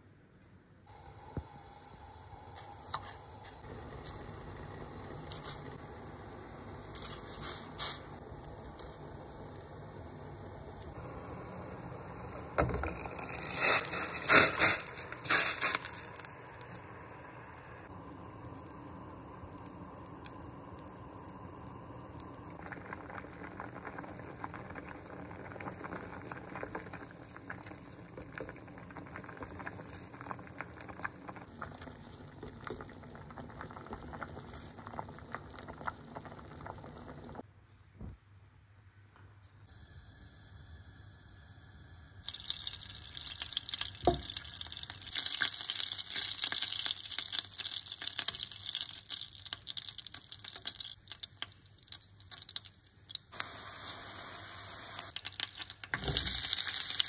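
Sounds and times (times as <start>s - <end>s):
water boiling and bubbling: 0.9s - 37.4s, 39.7s - 57.0s
water splashing in pot: 42.2s - 53.5s, 55.0s - 57.0s.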